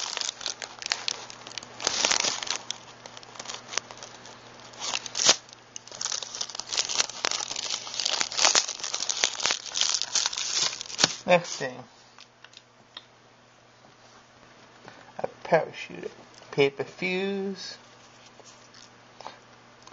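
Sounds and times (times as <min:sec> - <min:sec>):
plastic and paper wrappers crinkling: 0:00.0 - 0:11.8.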